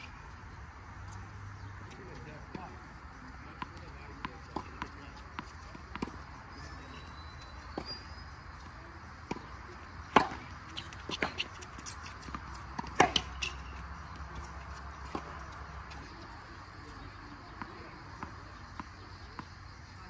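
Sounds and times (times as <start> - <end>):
tennis ball bouncing: 3.5 - 6.4, 7.7 - 16.1, 17.4 - 19.6
racket hitting tennis ball: 9.2 - 16.1.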